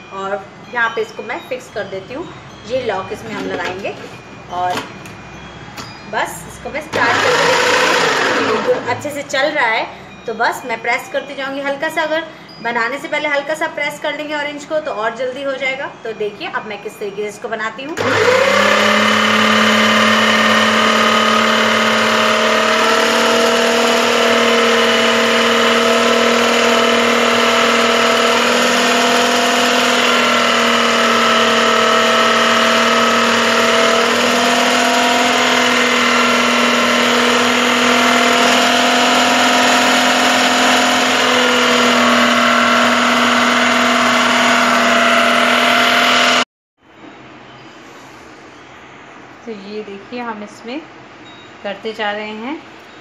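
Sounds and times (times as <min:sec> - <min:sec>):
juicer motor whining: 0:06.8 - 0:09.5, 0:17.9 - 0:46.4.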